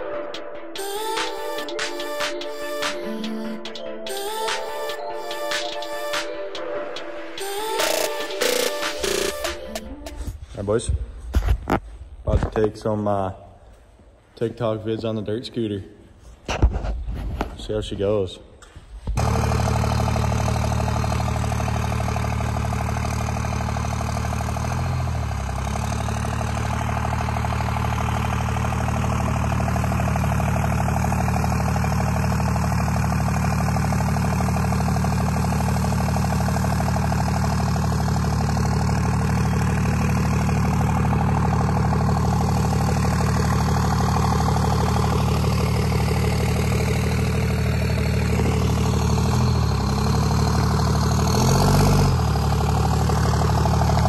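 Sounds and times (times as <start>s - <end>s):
diesel truck engine at low revs: 19.0s - 54.0s.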